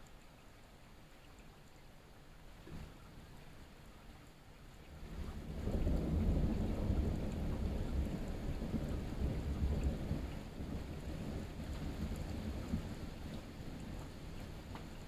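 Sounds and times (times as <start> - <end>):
rolling thunder: 5.1 - 14.4.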